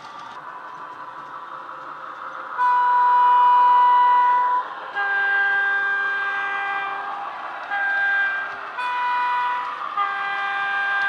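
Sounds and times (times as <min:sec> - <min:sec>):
model diesel locomotive engine: 0:00.0 - 0:11.0
two-tone locomotive horn: 0:02.6 - 0:11.0.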